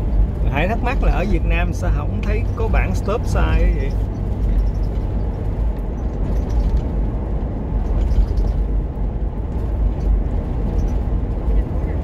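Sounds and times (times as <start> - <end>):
car driving road noise: 0.0 - 12.0
car engine: 0.0 - 12.0.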